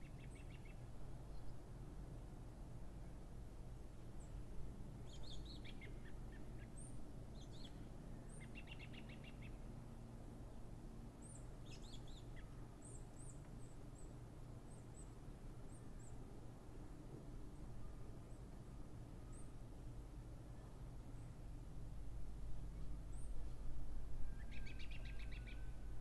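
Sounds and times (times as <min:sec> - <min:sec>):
low background rumble: 0:15.6 - 0:26.0.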